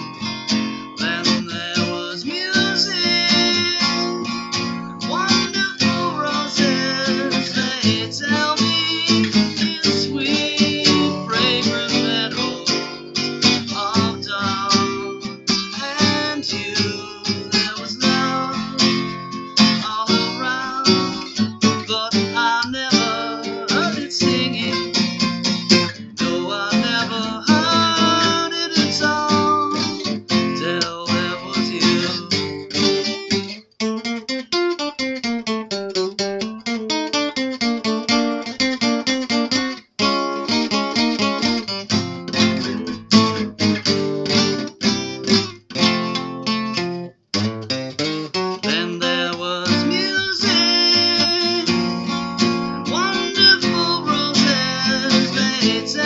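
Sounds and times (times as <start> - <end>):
acoustic guitar ballad: 0.0 - 56.0.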